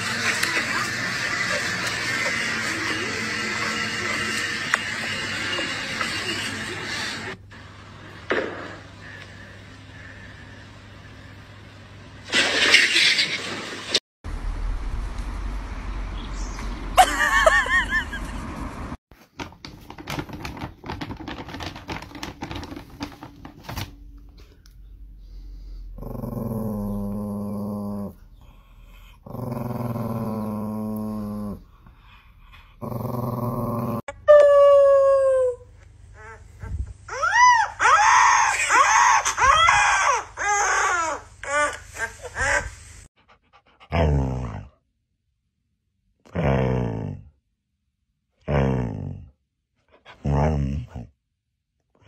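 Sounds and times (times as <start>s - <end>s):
small dog growling: 25.9s - 31.8s, 32.6s - 34.1s
puppy howling: 34.0s - 36.4s, 37.1s - 41.2s.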